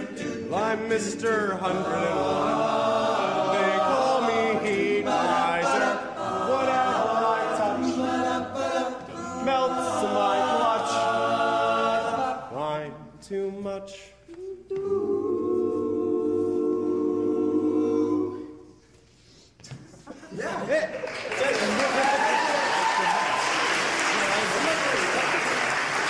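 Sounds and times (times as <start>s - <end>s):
group singing in harmony: 0.0s - 19.2s.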